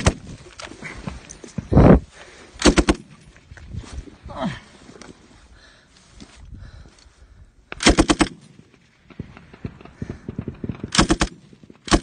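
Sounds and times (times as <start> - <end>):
automatic rifle fire burst: 7.8 - 8.4, 9.6 - 12.0.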